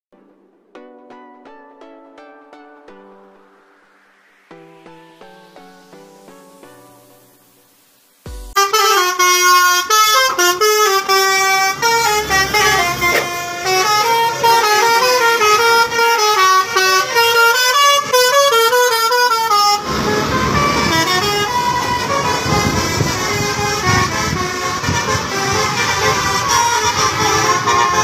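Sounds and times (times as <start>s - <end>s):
rough rushing noise: 3.3s - 18.4s, 19.6s - 28.0s
multi-tone air horn melody: 8.3s - 28.0s.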